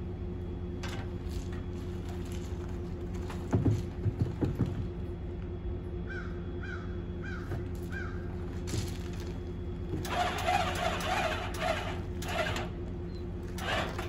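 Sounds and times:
steady low hum: 0:00.0 - 0:14.0
birds calling: 0:06.0 - 0:08.5.

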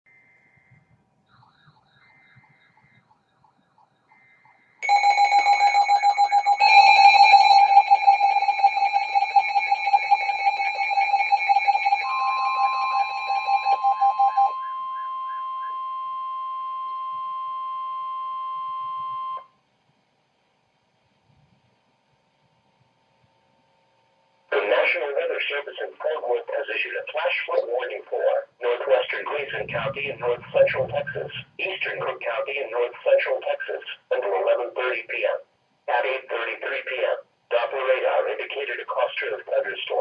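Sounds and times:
rapid pulsing electronic beeps: 0:00.1 - 0:04.8, 0:10.8 - 0:17.0, 0:28.6 - 0:33.5
steady warning tone: 0:00.1 - 0:19.6, 0:24.5 - 0:35.1.

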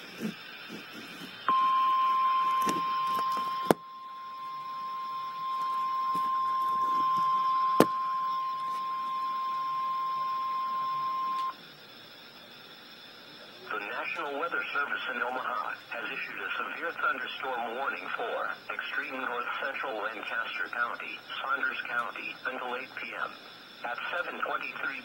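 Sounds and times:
high steady alert beep: 0:01.5 - 0:11.5.

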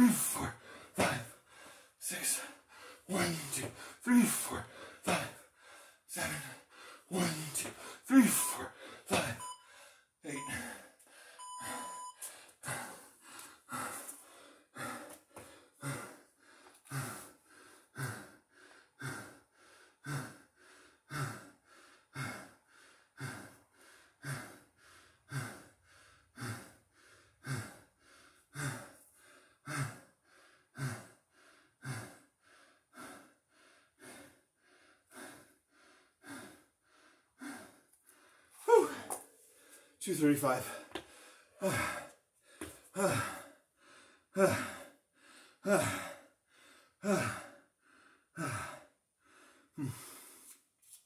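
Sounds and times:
man breathing hard: 0:00.0 - 0:50.7
short electronic beep: 0:11.4 - 0:12.2.

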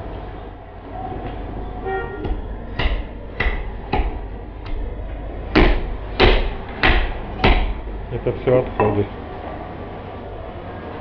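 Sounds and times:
meat cleaver chopping bone on wood: 0:02.2 - 0:04.9, 0:05.5 - 0:07.9.

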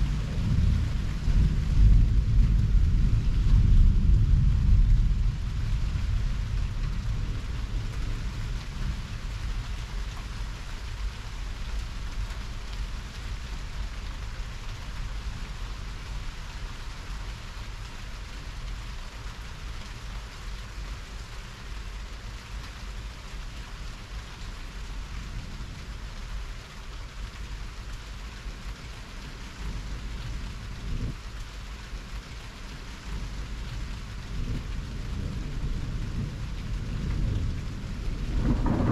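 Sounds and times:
thunder rumble: 0:00.0 - 0:17.9, 0:33.0 - 0:38.9
steady rain hissing: 0:00.0 - 0:38.9.

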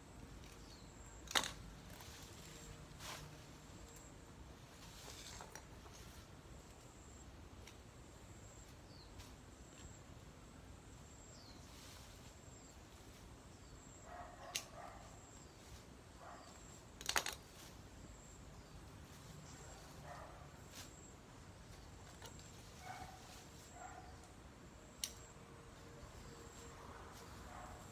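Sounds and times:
rustling leafy branches: 0:00.1 - 0:10.3, 0:10.9 - 0:27.9
stem snapping crackle: 0:00.4 - 0:01.6, 0:25.0 - 0:25.3.

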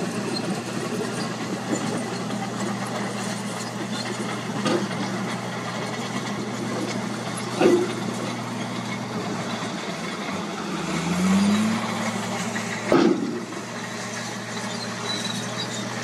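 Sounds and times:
diesel truck engine running: 0:00.0 - 0:16.0.

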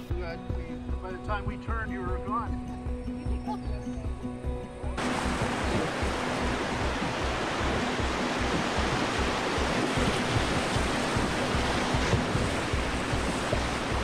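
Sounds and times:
whitewater rushing: 0:05.0 - 0:14.0
wind buffeting microphone: 0:05.0 - 0:14.0.

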